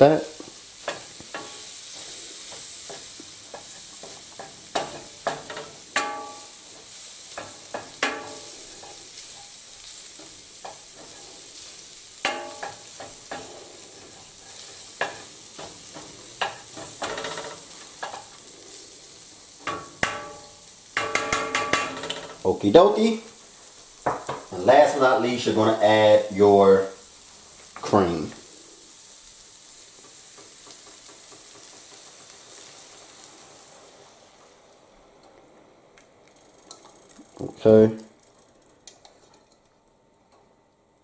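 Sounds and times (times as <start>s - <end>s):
meat sizzling: 0.0s - 41.0s
wooden spoon scraping skillet: 0.8s - 18.9s
spoon knocking against pan: 2.9s - 6.4s, 19.6s - 22.4s.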